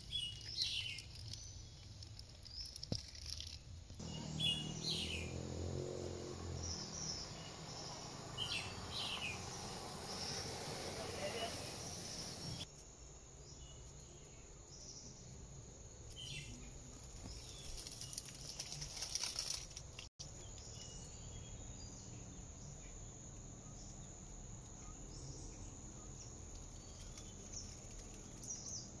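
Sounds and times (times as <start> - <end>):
burst of louder noise: 6.6 - 12.6.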